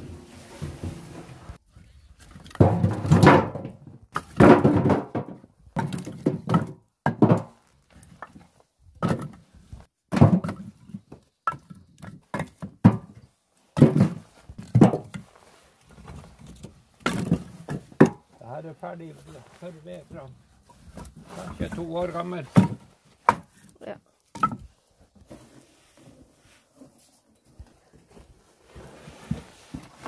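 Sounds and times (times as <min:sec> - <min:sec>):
logs thunking into wheelbarrow: 0:02.3 - 0:09.4, 0:10.1 - 0:18.4, 0:20.2 - 0:23.7, 0:24.3 - 0:25.6.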